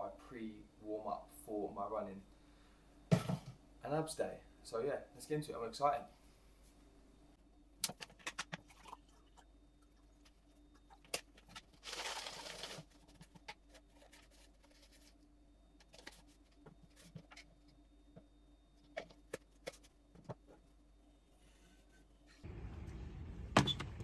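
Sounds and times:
powder pouring: 11.8s - 12.9s.

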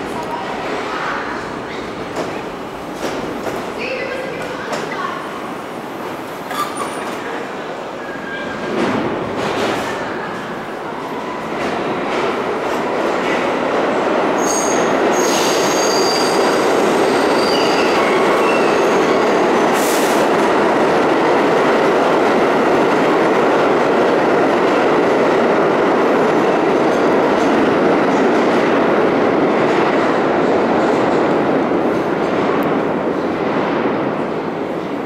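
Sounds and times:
subway train wheels running: 0.0s - 35.0s.

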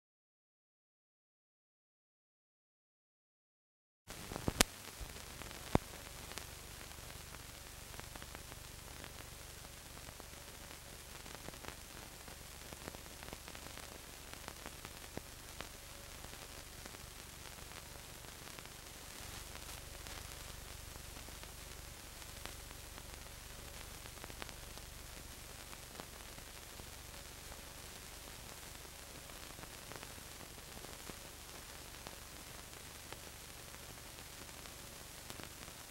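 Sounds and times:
sharp pops: 4.1s - 5.9s
faint crackles: 4.1s - 35.9s
film soundtrack hiss and hum: 4.1s - 35.9s.

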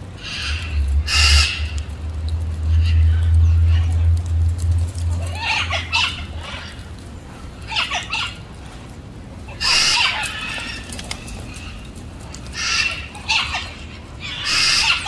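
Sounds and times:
macaws squawking: 0.2s - 1.9s, 5.2s - 6.9s, 7.6s - 8.5s, 9.5s - 15.0s
macaws flapping wings: 9.7s - 13.8s.

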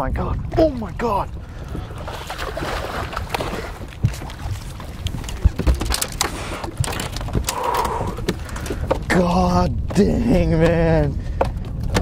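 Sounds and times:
low wind rumble: 0.0s - 12.0s
knocks and clunks: 5.2s - 12.0s.

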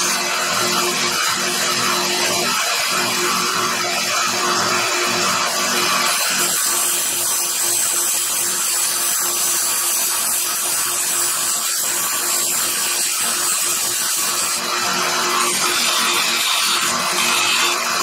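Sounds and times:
chisel grinding on belt sander: 0.0s - 18.0s
belt sander motor hum: 13.2s - 18.0s.

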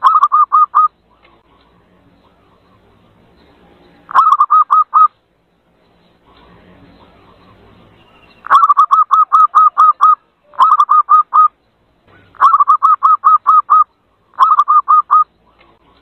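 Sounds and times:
dove cooing: 4.1s - 5.1s, 8.4s - 11.5s, 12.1s - 15.3s.

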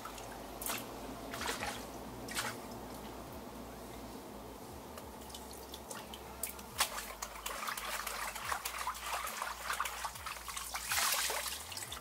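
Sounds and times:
water splashes: 0.0s - 2.8s, 5.2s - 12.0s.

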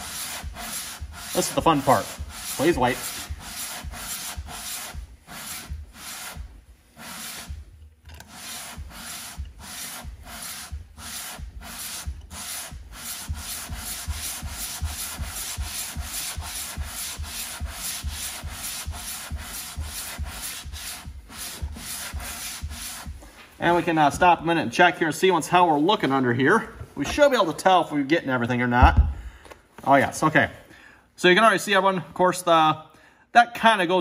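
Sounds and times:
metal scraping on wet sandpaper: 0.0s - 6.4s, 7.0s - 7.6s, 8.2s - 23.9s.

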